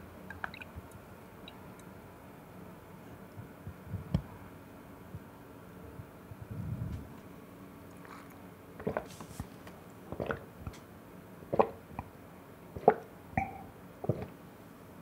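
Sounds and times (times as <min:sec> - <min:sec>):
person gulping a drink: 0:08.0 - 0:09.2, 0:10.1 - 0:10.5, 0:11.5 - 0:11.8, 0:12.8 - 0:14.4.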